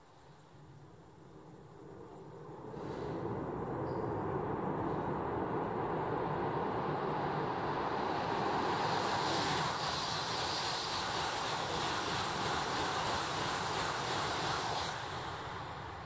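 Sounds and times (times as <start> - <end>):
high-speed train passing: 0.8 - 16.0.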